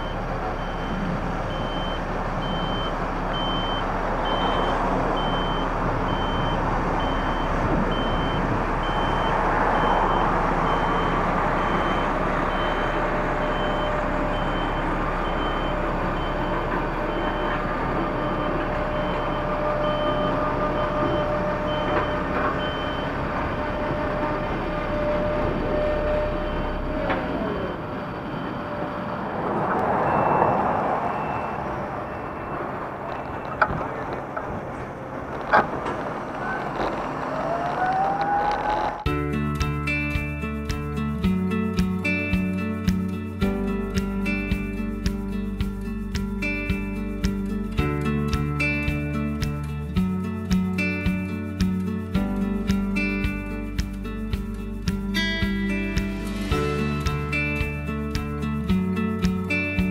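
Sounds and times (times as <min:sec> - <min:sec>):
reverse warning beeper: 0:00.0 - 0:33.6
vehicle rumble: 0:00.0 - 0:59.9.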